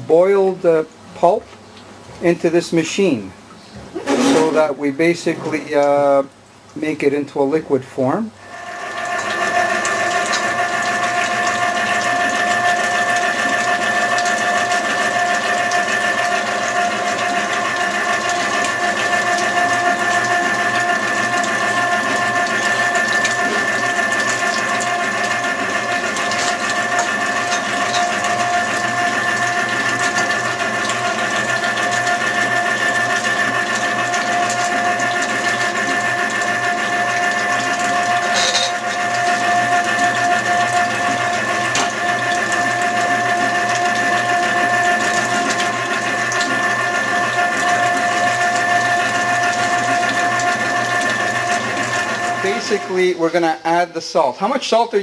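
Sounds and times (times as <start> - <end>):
electric strainer motor whining: 8.4 - 53.6.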